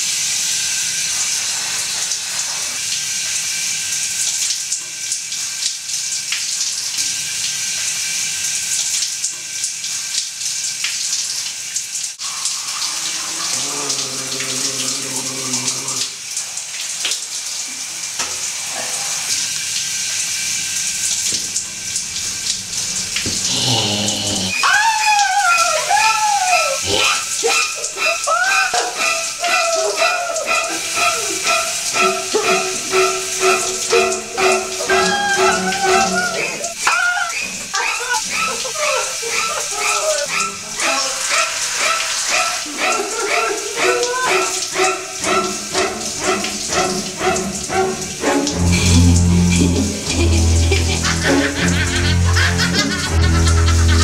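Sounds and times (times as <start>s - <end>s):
shower spray running: 0.0s - 54.0s
shrill swooping sounds: 24.6s - 40.4s.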